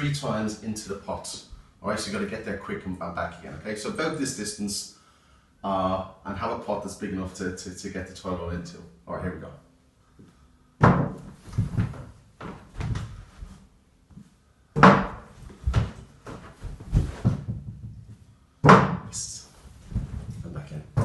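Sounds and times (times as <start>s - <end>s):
small knocks and thumps: 10.8s - 19.2s, 19.8s - 21.0s.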